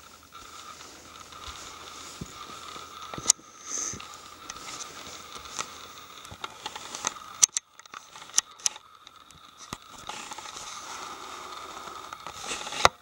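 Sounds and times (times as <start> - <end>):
footsteps crunching on snow: 0.0 - 7.2.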